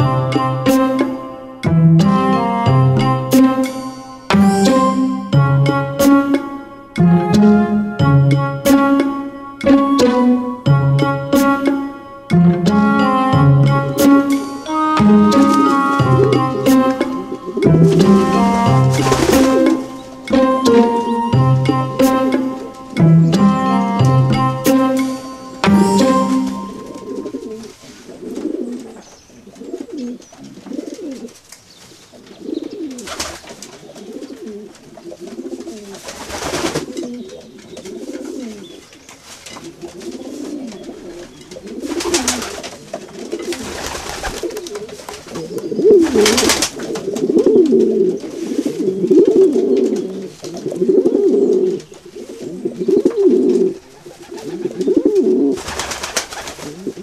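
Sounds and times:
pigeons cooing: 15.2 - 20.2, 26.9 - 31.4, 32.2 - 39.0, 39.6 - 57.0.

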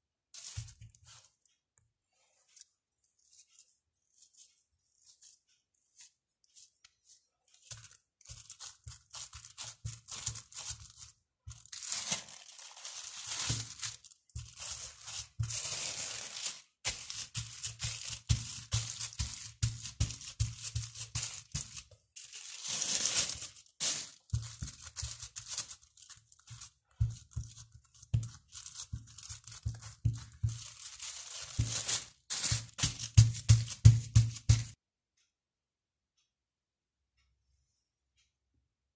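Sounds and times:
plastic film crinkling: 0.4 - 1.3, 7.7 - 34.8.

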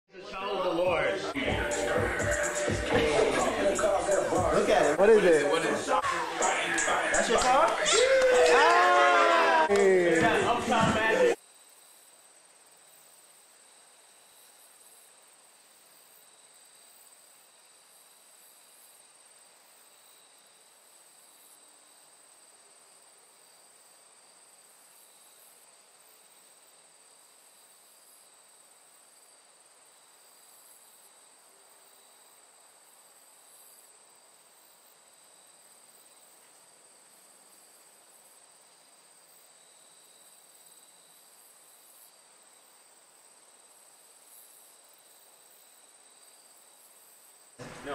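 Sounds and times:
faint steady hiss: 0.1 - 47.9.

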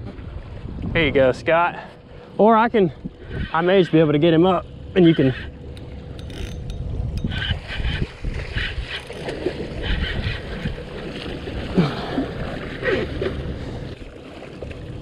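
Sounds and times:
wind rumbling on microphone: 0.0 - 1.8, 2.8 - 4.0, 5.7 - 15.0
water splashing against boat hull: 5.4 - 15.0.

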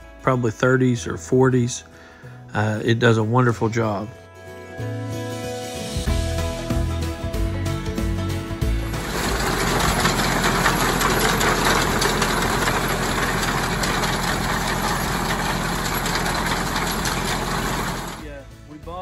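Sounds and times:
music: 0.0 - 13.1, 17.3 - 19.0
tractor engine running: 8.7 - 18.2.

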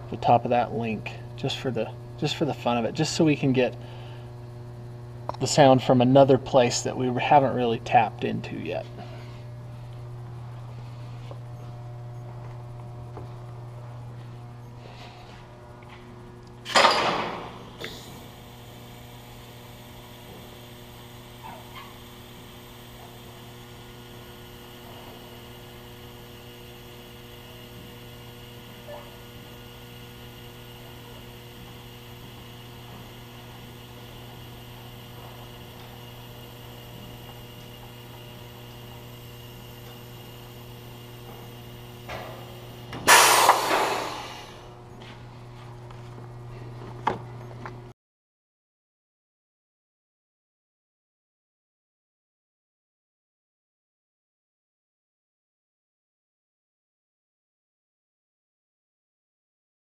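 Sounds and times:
electrical mains hum: 0.0 - 48.0
loud burst of hiss: 43.0 - 44.6.

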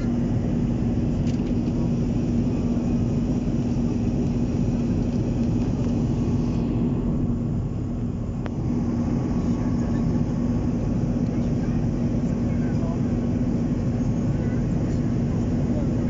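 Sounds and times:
constant hum: 0.0 - 16.0
jet engine cabin rumble: 0.0 - 16.0.

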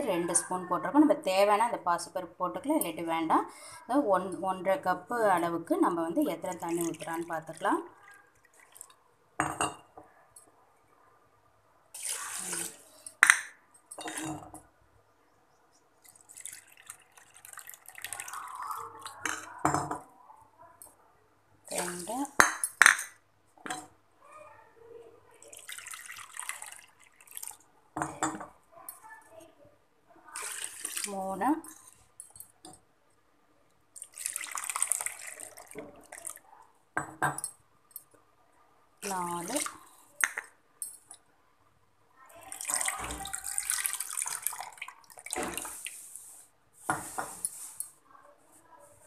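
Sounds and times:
water pouring into a bowl: 6.4 - 9.0, 11.9 - 13.2, 16.0 - 19.6, 21.7 - 22.3, 25.3 - 27.7, 30.3 - 32.4, 33.9 - 36.6, 39.0 - 40.5, 42.3 - 46.4.

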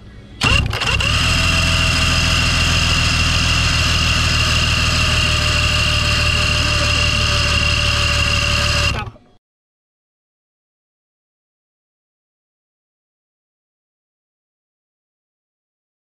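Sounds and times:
engine clatter: 0.4 - 9.2
starter motor cranking engine: 0.4 - 9.2.

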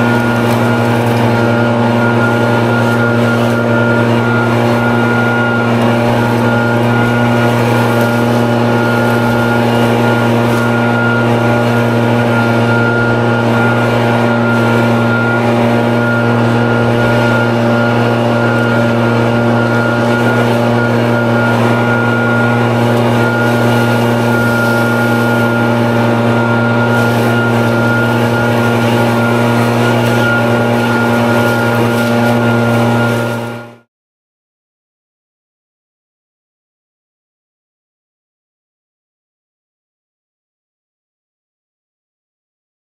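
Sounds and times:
leaf blower engine running: 0.0 - 33.9.

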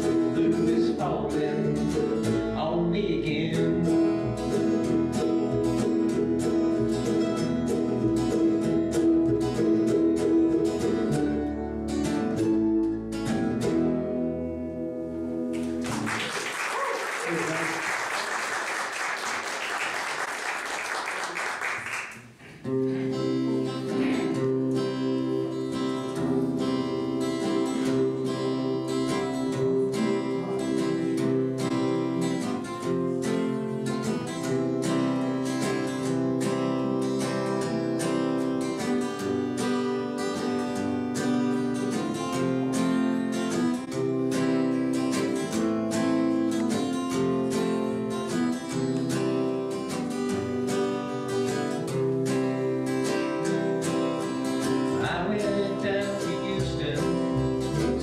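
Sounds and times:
upright bass: 0.0 - 16.1, 22.4 - 38.6, 51.7 - 58.0
mandolin: 0.0 - 16.2, 22.6 - 58.0
acoustic guitar strumming: 0.0 - 16.3, 22.5 - 58.0
applause: 15.5 - 22.6.

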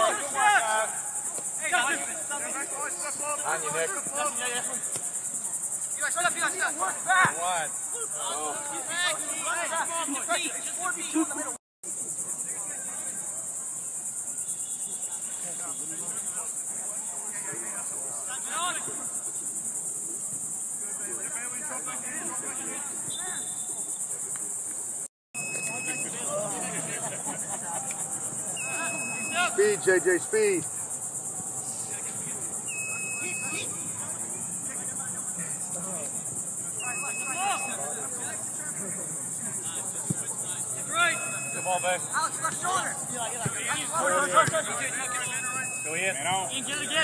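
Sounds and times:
high-pitched insect chorus: 0.0 - 47.0
faint distant voices: 25.5 - 47.0.

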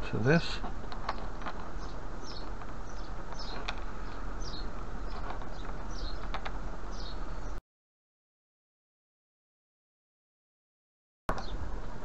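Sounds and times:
bird chirping: 0.0 - 7.6
low hum and hiss: 0.0 - 7.6, 11.3 - 12.0.

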